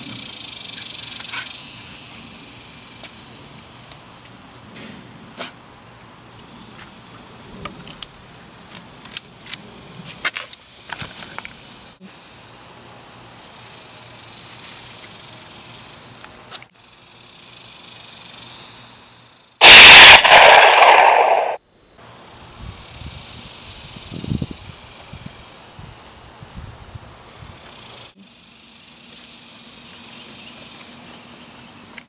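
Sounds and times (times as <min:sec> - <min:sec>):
pistol shot sound effect: 0:19.6 - 0:21.6.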